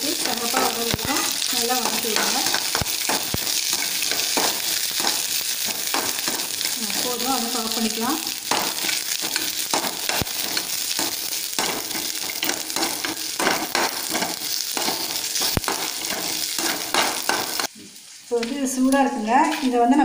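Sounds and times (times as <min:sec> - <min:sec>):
aromatics sizzling in oil: 0:00.0 - 0:20.0
spatula scraping a pan: 0:00.1 - 0:07.4, 0:08.4 - 0:17.7.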